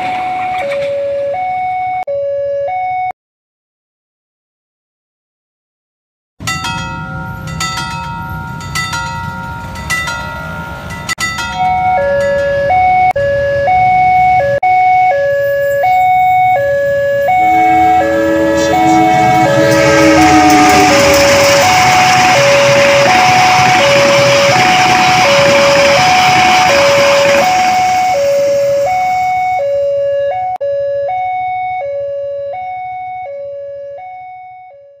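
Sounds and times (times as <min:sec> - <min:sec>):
passing train rumble: 0:00.0 - 0:01.2, 0:06.4 - 0:14.6, 0:15.4 - 0:29.8
crossing bell dinging: 0:06.4 - 0:13.1, 0:15.3 - 0:29.8
electronic two-tone alarm: 0:11.6 - 0:35.0.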